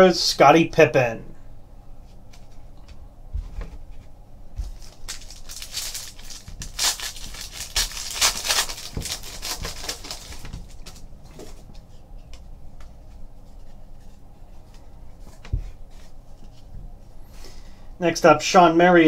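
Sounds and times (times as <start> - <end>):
soft handling knocks: 2.3 - 4.9, 8.9 - 17.1
foil wrapper tearing and crinkling: 4.6 - 11.1.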